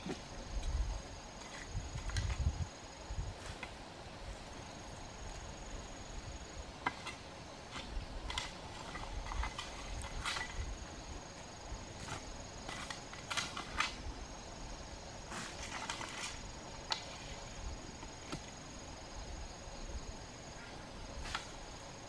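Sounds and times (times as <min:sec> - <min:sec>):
high insect trill: 0:00.0 - 0:22.0
hoe chopping into dry soil: 0:15.3 - 0:17.1, 0:18.1 - 0:18.6.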